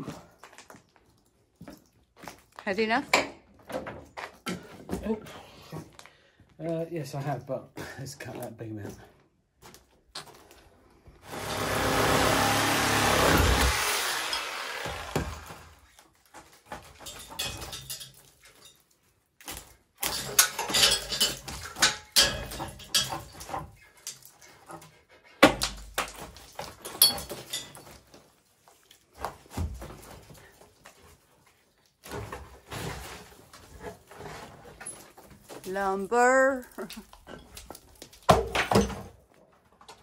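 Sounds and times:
power saw: 11.2s - 16.0s.

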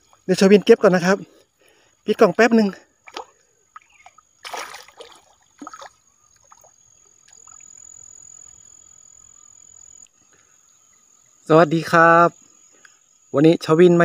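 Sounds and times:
high insect trill: 0.0s - 14.0s
fish splashing in water: 3.0s - 7.8s.

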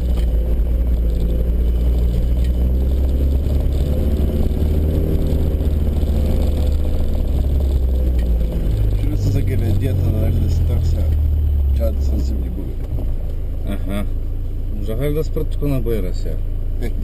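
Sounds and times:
diesel engine drone from inside cab: 0.0s - 17.0s.

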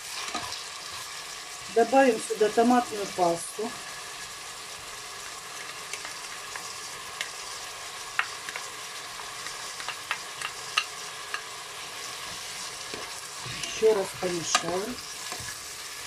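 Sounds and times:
vegetables sizzling while frying: 0.0s - 16.0s
plastic spatula clicks and taps: 8.1s - 8.7s, 9.4s - 11.4s.

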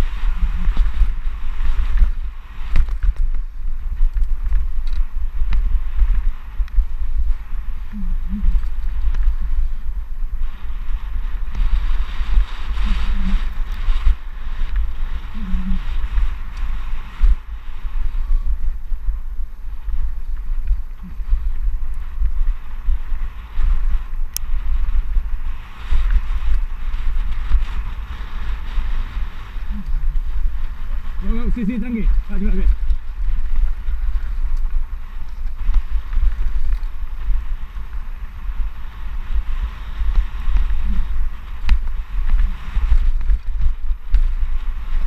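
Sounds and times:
tyres rushing over dry dirt: 0.0s - 45.0s
wind buffeting microphone: 0.0s - 45.0s.

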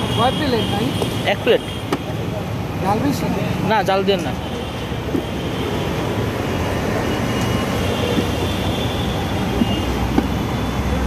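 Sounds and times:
roadside traffic noise: 0.0s - 11.0s.

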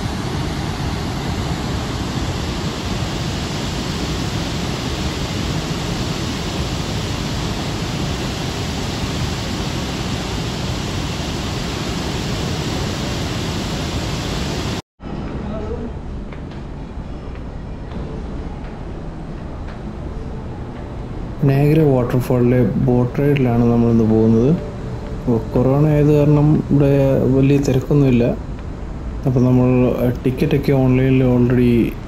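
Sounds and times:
waterfall rushing: 0.0s - 14.8s.

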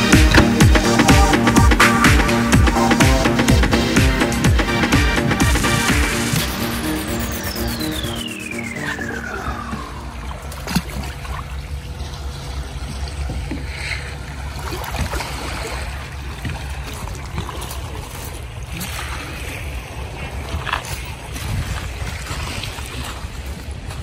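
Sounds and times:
falling music tone: 0.0s - 11.2s
shallow sea water lapping: 9.6s - 24.0s.

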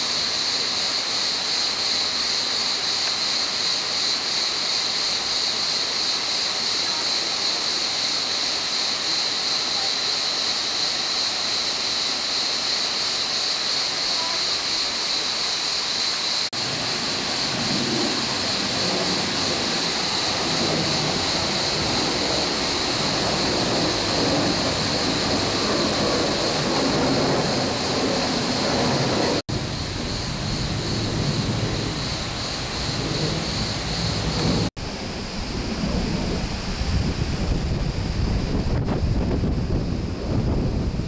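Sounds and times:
waterfall rushing: 0.0s - 38.3s
high-pitched whine: 14.8s - 40.6s.

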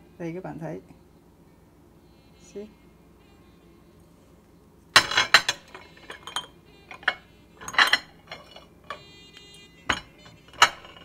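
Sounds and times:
glass jars clinking: 5.0s - 9.1s, 9.8s - 11.0s.

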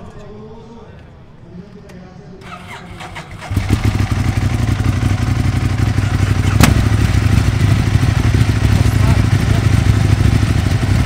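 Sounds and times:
motorcycle engine idling: 2.4s - 11.0s.

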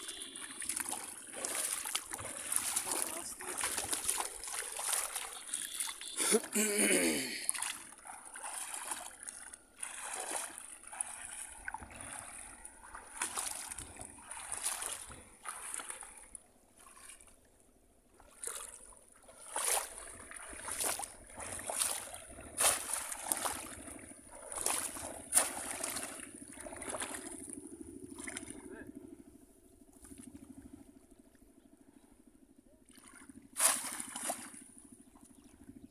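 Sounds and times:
fish traps splashing into water: 0.0s - 9.2s, 9.8s - 16.0s, 18.2s - 27.4s, 33.0s - 34.7s
wading through shallow water: 0.0s - 35.9s.

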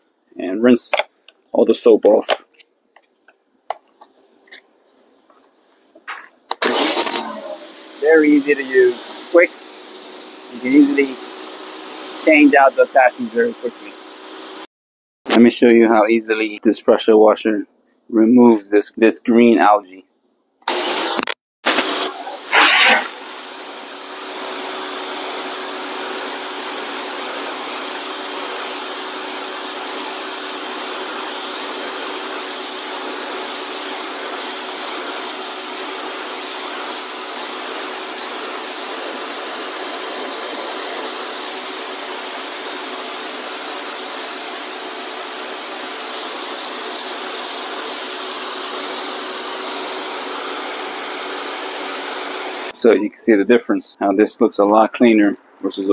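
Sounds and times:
pressure washer motor hum: 6.4s - 14.7s, 20.6s - 52.8s
water spray hissing on concrete: 6.6s - 14.7s, 21.7s - 52.8s.

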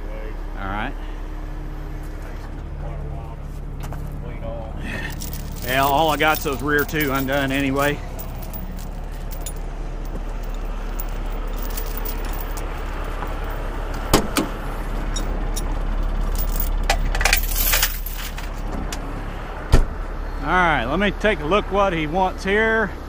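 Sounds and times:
diesel truck idling: 0.0s - 23.0s
light metallic clinks: 5.0s - 13.7s.

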